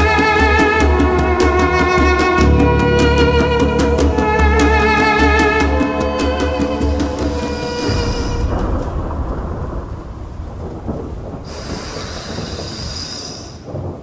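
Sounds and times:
music sting: 1.0s - 10.0s
low thunder rumble: 2.2s - 14.0s
rain-like hiss: 7.1s - 14.0s.

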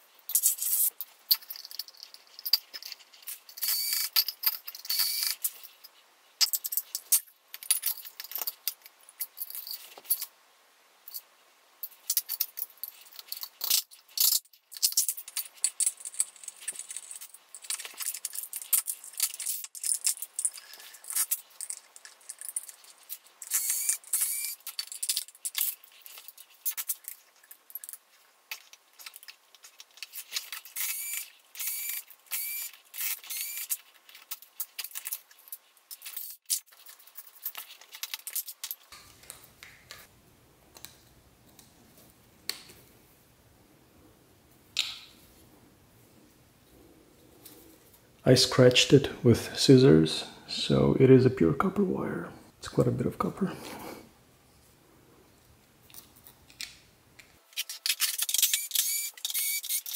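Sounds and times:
quiet hiss: 0.0s - 58.0s
metal parts clinking: 0.3s - 10.3s, 11.8s - 38.9s
screwdriver working screws: 2.5s - 5.5s, 12.1s - 27.1s, 30.0s - 35.3s, 57.5s - 59.9s.

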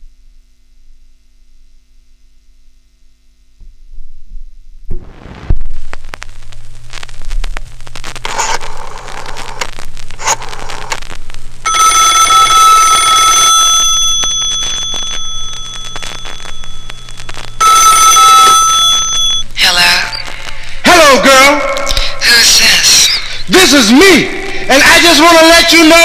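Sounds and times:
record stylus crackle: 4.8s - 26.0s
telephone bell ringing: 11.7s - 16.9s, 17.6s - 19.4s
low hum: 13.4s - 20.8s.

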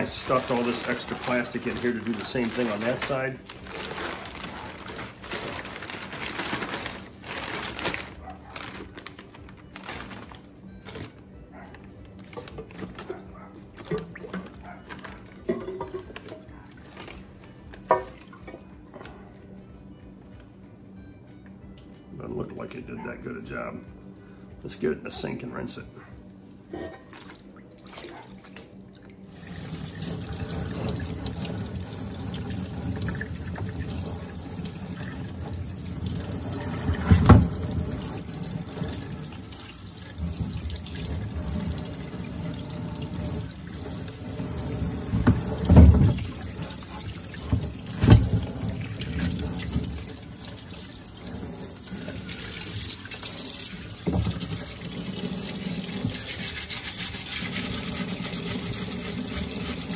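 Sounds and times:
tap water splashing on metal: 29.4s - 56.6s.

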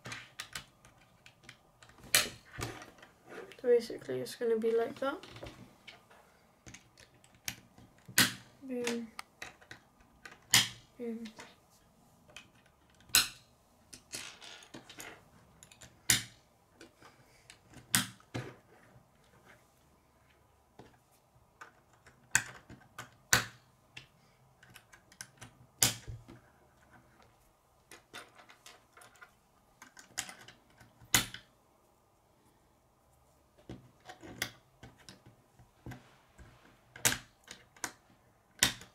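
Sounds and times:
plastic parts snapping together: 6.6s - 10.8s, 38.6s - 38.9s
plastic parts rattling: 27.9s - 31.4s.

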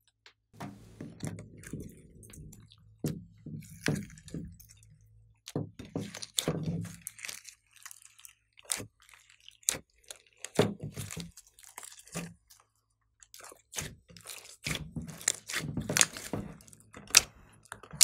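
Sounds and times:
slime squishing and popping: 5.4s - 12.4s, 13.3s - 18.0s.

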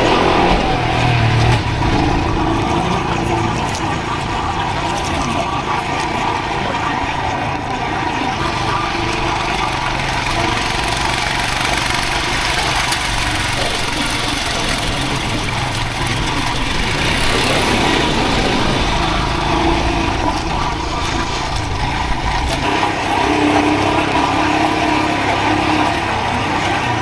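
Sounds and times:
low rumble from bumpy road: 0.0s - 27.0s
motorcycle engine running: 0.0s - 27.0s
wind noise on microphone: 12.8s - 24.5s.

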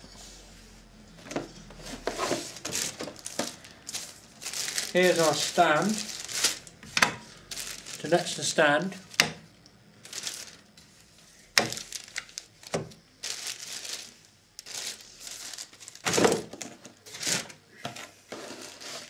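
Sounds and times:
plastic bags crinkling: 1.4s - 9.4s, 10.0s - 10.7s, 11.6s - 17.6s.

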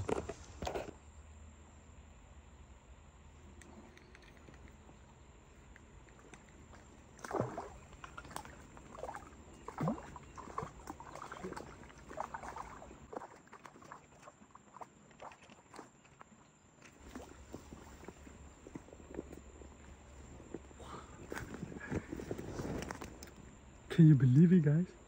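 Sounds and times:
small irregular clicks: 3.5s - 7.0s
fish splashing in water: 6.7s - 18.2s.

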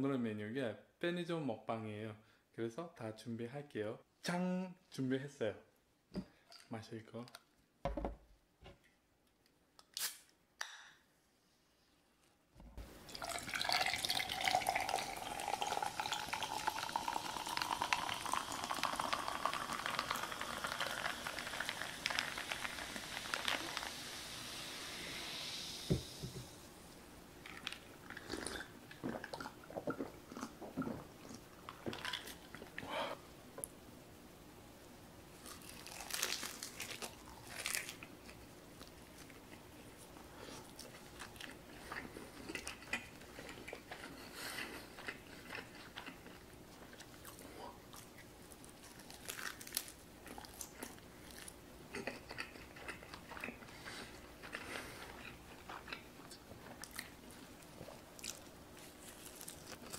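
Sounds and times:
soda fizzing into glass: 13.0s - 26.6s.

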